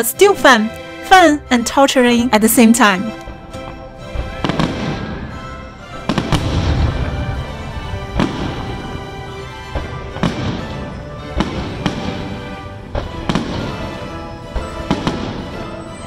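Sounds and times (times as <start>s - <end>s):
background music: 0.0s - 16.0s
aerial fireworks bursting: 4.1s - 5.4s, 6.0s - 15.8s.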